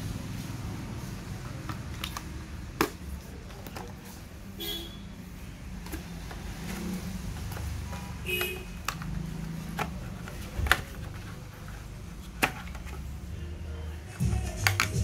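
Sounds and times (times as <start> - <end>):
plastic charger clicks and taps: 8.4 - 11.2, 14.6 - 15.0.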